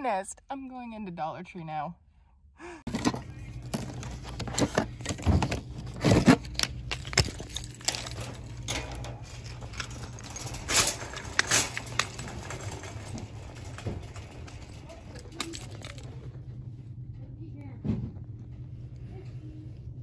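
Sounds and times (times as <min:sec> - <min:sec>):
steady low hum: 0:01.9 - 0:20.0
wire shopping cart rattling: 0:03.0 - 0:16.3.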